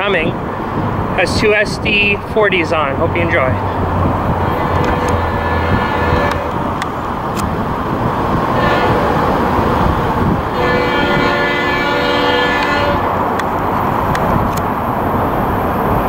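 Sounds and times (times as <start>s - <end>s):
diesel engine rumble: 0.0s - 16.0s
train air horn blasts: 4.4s - 6.7s, 8.5s - 9.4s, 10.5s - 13.2s.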